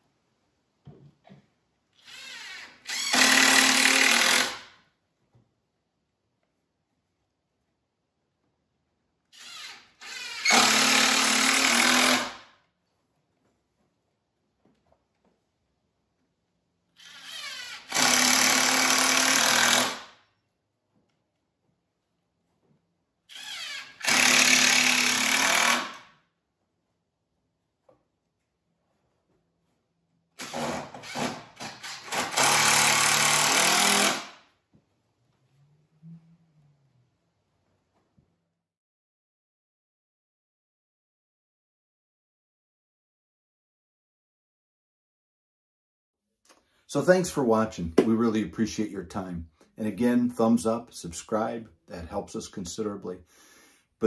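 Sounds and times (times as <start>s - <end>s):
cordless drill driving into wood: 2.0s - 4.7s, 9.4s - 12.5s, 17.0s - 20.2s, 23.3s - 26.1s, 30.4s - 34.4s.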